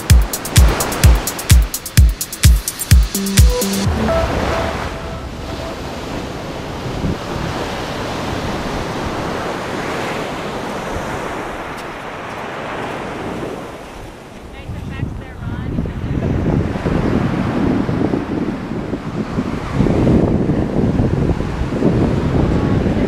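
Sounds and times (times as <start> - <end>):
wind buffeting microphone: 14.6 - 23.0.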